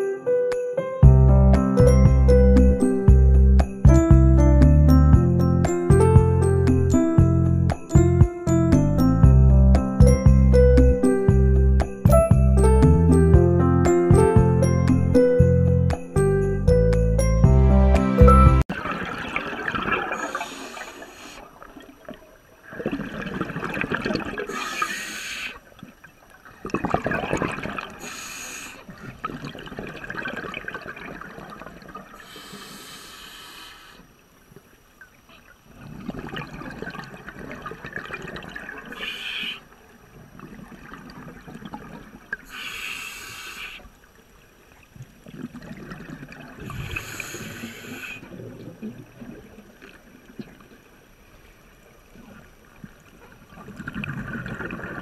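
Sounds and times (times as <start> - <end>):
underwater breath bubbling: 19.7 - 21.6, 22.7 - 25.6, 26.8 - 30.4, 32.1 - 34.1, 38.1 - 39.7, 42.4 - 43.9, 45.6 - 49.0.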